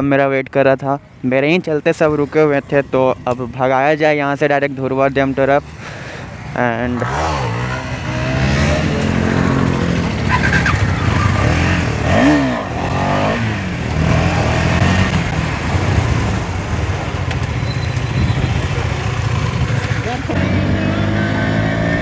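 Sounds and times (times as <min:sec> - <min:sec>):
motorcycle engine running: 0:06.3 - 0:22.0.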